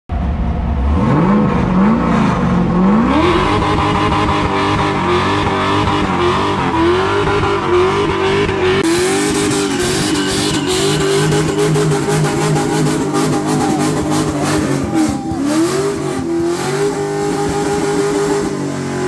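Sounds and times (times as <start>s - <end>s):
car engine revving: 0.1s - 19.0s
tyres squealing on concrete: 9.2s - 18.4s.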